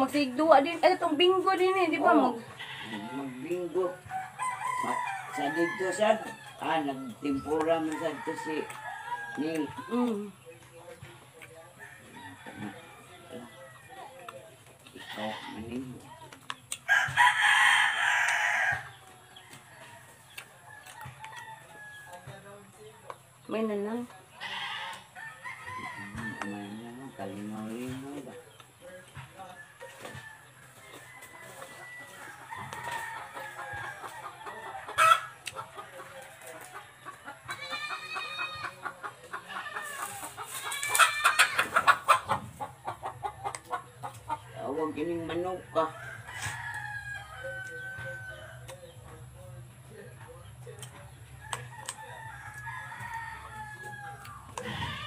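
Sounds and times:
chickens clucking: 0:00.0 - 0:55.0
rooster crowing: 0:02.2 - 0:09.7, 0:16.9 - 0:18.9, 0:24.8 - 0:26.8, 0:29.6 - 0:35.3, 0:45.7 - 0:48.8, 0:51.4 - 0:55.0.

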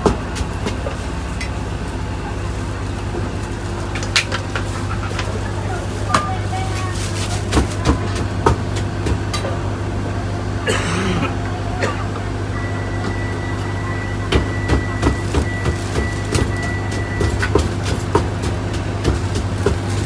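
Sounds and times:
steady low hum: 0:00.0 - 0:20.0
pestle pounding in clay mortar: 0:07.4 - 0:09.3, 0:14.3 - 0:20.0.

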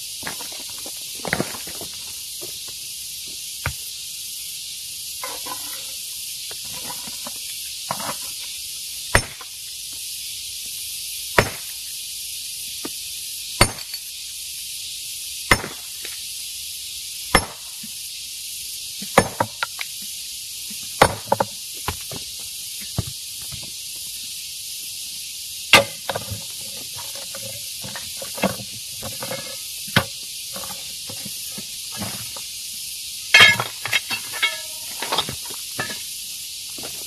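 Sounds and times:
steady high hiss: 0:00.0 - 0:37.0
hammer striking rock: 0:09.1 - 0:09.5, 0:11.4 - 0:11.7, 0:13.6 - 0:14.0, 0:15.5 - 0:15.8, 0:17.3 - 0:17.6, 0:19.1 - 0:19.6, 0:21.0 - 0:22.1, 0:25.8 - 0:26.4, 0:33.4 - 0:34.8.

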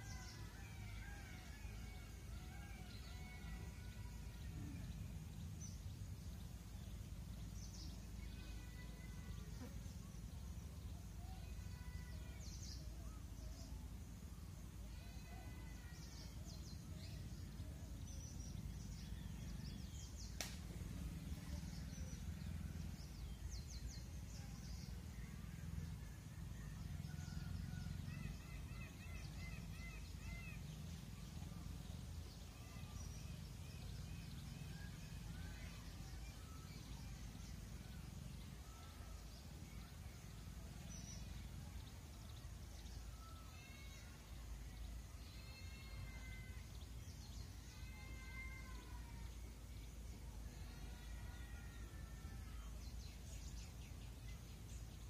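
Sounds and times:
insect buzz: 0:00.0 - 0:25.8.

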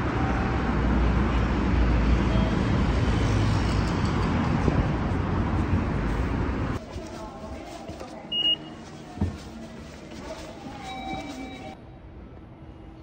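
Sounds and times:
street traffic rushing: 0:00.0 - 0:07.0
high electronic beep: 0:08.3 - 0:08.7.

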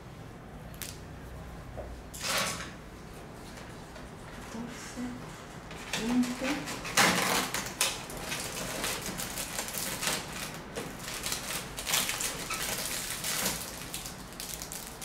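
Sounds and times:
cardboard and plastic wrapper rustling: 0:06.1 - 0:15.0.

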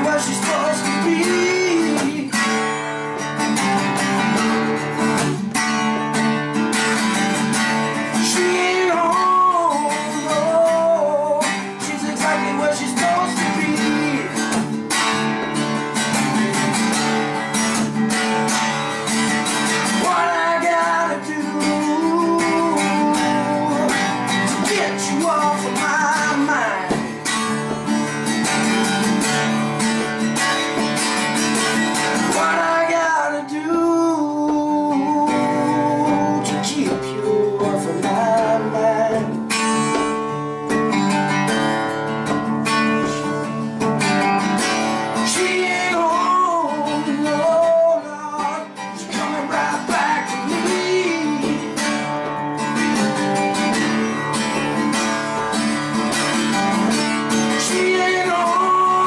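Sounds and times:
man singing: 0:00.0 - 0:02.9, 0:07.8 - 0:15.0, 0:19.3 - 0:27.8, 0:31.9 - 0:41.4, 0:42.6 - 0:43.8, 0:44.5 - 0:53.9, 0:56.7 - 0:59.0
acoustic guitar strumming: 0:00.0 - 0:59.0.

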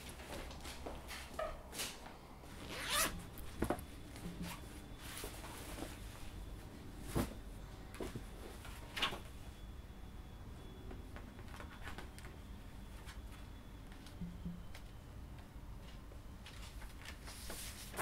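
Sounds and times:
backpack zipping and rustling: 0:02.6 - 0:03.2
papers being handled: 0:15.8 - 0:18.0.

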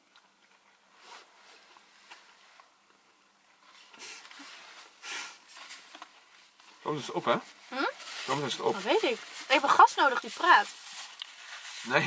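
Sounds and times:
paper and cardboard rustling: 0:03.6 - 0:12.0.

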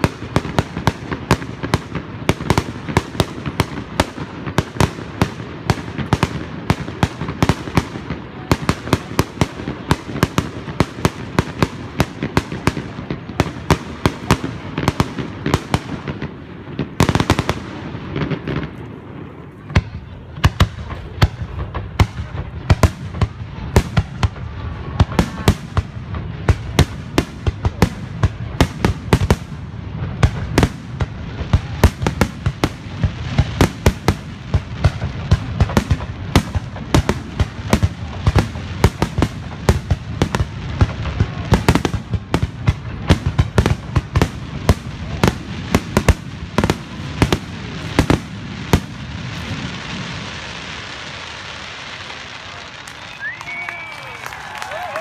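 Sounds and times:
fireworks bursting: 0:00.0 - 0:55.0.

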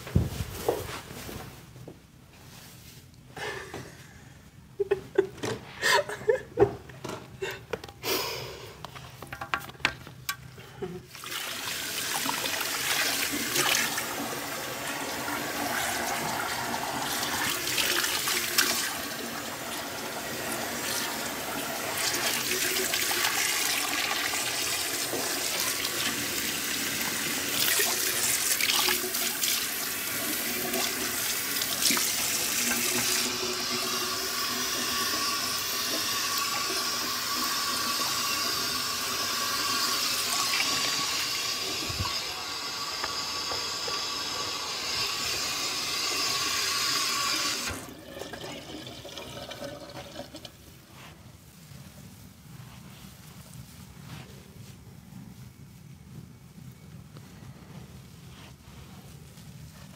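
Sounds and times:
tap water running into sink: 0:11.2 - 0:50.6.

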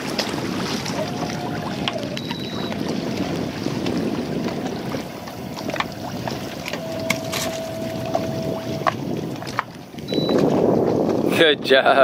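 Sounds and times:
water around boat: 0:00.0 - 0:12.0
wind: 0:00.0 - 0:12.0
faint steady tone: 0:01.0 - 0:02.8, 0:06.6 - 0:08.9.

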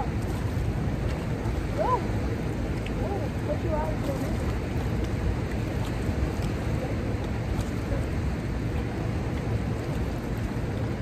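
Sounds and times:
river water rushing below dam: 0:00.0 - 0:11.0.

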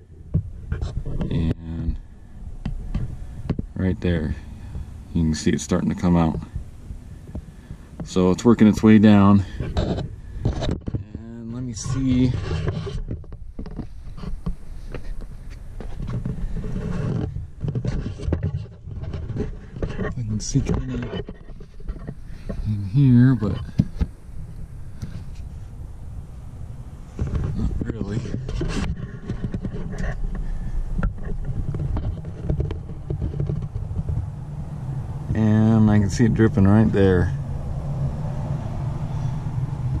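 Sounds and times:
wind buffeting microphone: 0:00.0 - 0:40.0
camera handling scrapes and knocks: 0:00.4 - 0:01.5, 0:09.5 - 0:22.7, 0:23.4 - 0:25.7, 0:27.1 - 0:34.3
low rumble: 0:21.6 - 0:40.0
light clicks and knocks: 0:27.2 - 0:34.3.

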